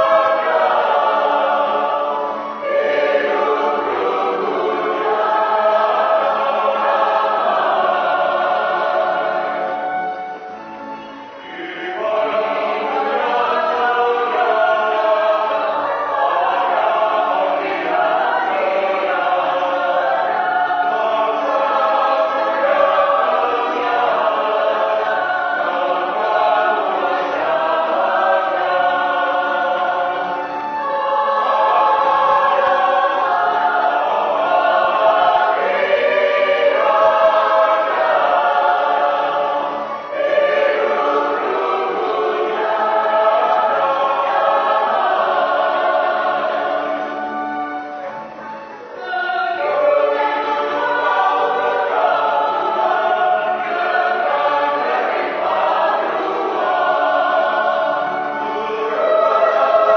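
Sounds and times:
choir singing sustained notes: 0:00.0 - 0:59.9.

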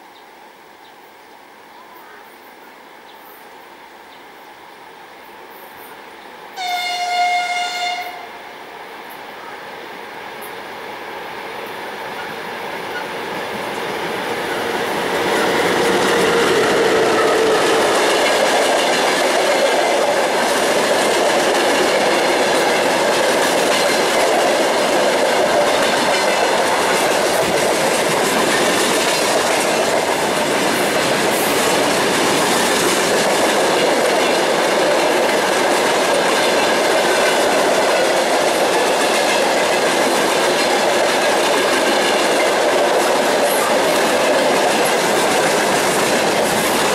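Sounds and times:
train wheels on rails: 0:09.9 - 0:46.9.

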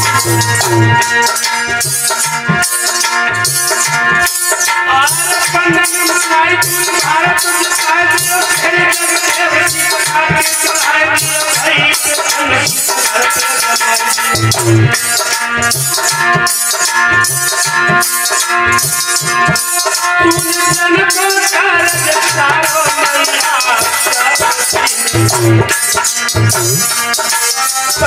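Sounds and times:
man singing: 0:00.0 - 0:01.2, 0:04.0 - 0:15.2, 0:20.1 - 0:27.0
harmonium: 0:00.0 - 0:28.0
rattling percussion: 0:00.0 - 0:28.0.

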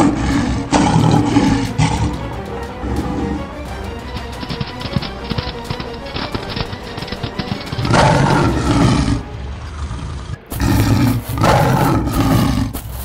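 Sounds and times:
cartoon big cat roars: 0:00.0 - 0:02.2, 0:07.8 - 0:12.8
background music with a beat: 0:00.9 - 0:08.4.

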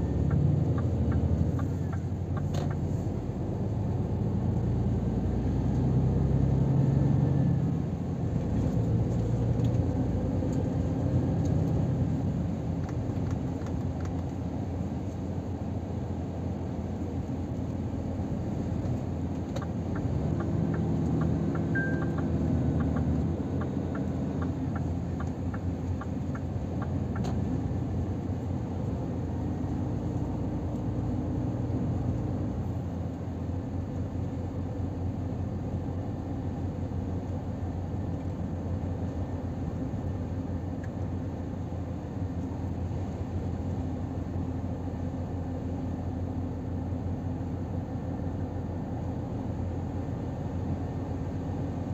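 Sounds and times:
turn signal ticking: 0:00.0 - 0:02.9, 0:19.3 - 0:27.6
diesel truck engine: 0:00.0 - 0:51.9
road rumble: 0:00.0 - 0:51.9.

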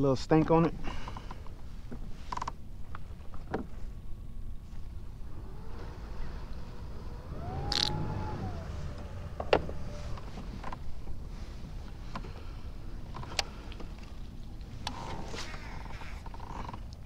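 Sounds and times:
low steady rumble: 0:00.0 - 0:17.0
drawn-out creak: 0:02.2 - 0:03.8, 0:04.7 - 0:11.2, 0:11.9 - 0:17.0
fishing tackle clicking: 0:07.7 - 0:08.0.

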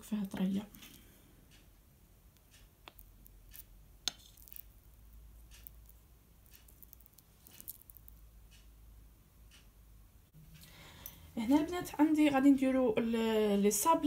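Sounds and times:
soft squish of paste: 0:02.4 - 0:08.7.

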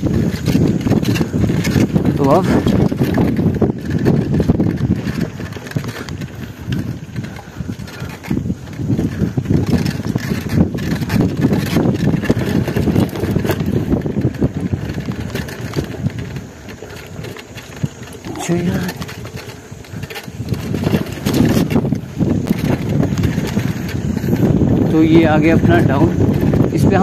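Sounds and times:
bike knocks and rattles: 0:00.0 - 0:27.0
bike tyres on rocky dirt: 0:00.0 - 0:27.0
wind buffeting microphone: 0:00.0 - 0:27.0.

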